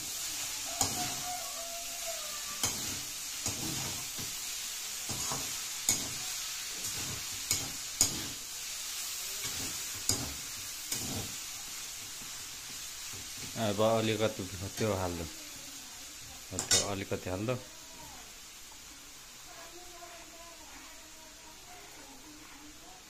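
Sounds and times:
noodles sizzling in wok: 0:00.0 - 0:23.0.

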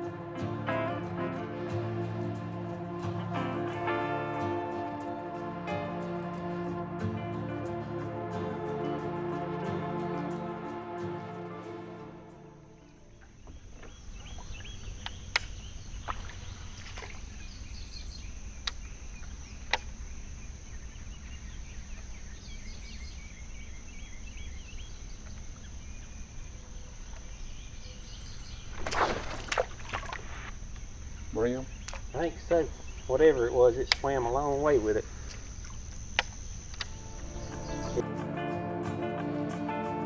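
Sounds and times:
insect drone: 0:00.0 - 0:40.0
birds chirping: 0:12.7 - 0:28.9, 0:30.8 - 0:40.0.

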